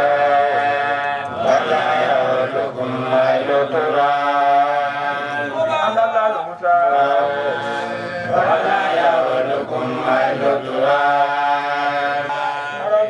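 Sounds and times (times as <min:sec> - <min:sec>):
men chanting: 0:00.0 - 0:13.0.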